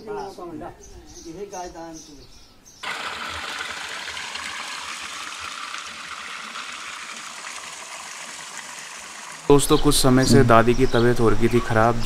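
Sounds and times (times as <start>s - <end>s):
water gushing from a pipe: 2.8s - 9.8s.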